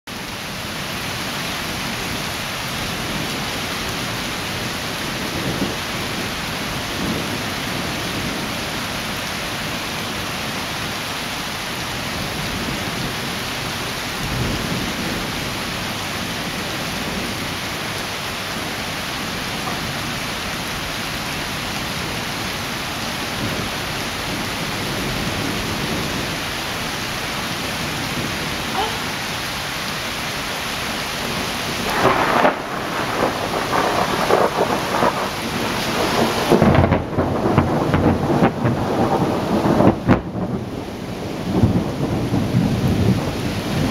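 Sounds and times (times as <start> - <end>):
steady rain hissing: 0.1 - 43.9
low rolls of thunder: 14.1 - 22.6, 31.2 - 43.9.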